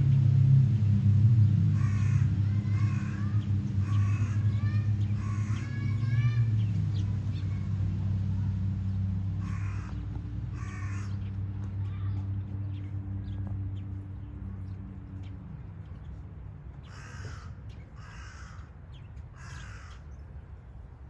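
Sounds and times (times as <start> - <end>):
low hum: 0.0 - 18.0
crows cawing: 1.8 - 6.5, 9.4 - 11.3, 16.8 - 20.1.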